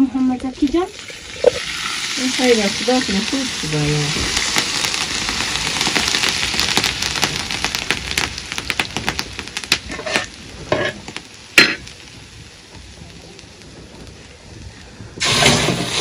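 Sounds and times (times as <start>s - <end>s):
hot oil sizzling on rice: 0.0s - 16.0s.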